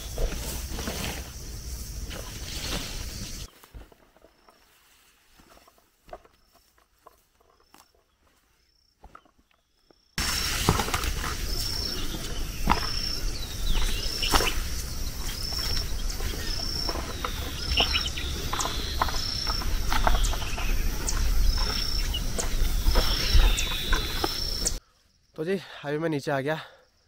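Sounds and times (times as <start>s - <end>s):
chirps and clicks: 11.4s - 24.8s.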